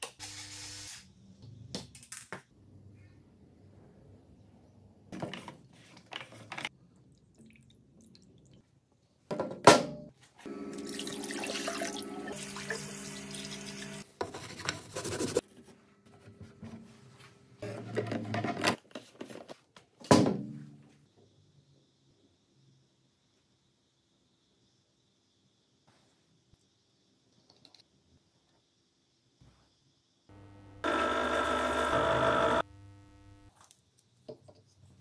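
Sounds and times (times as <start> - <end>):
running water: 10.7 - 14.0.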